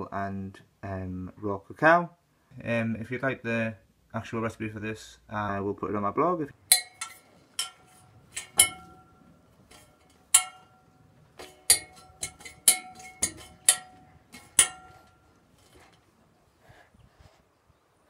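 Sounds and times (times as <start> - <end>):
sharp metallic clinks: 6.7 - 15.8.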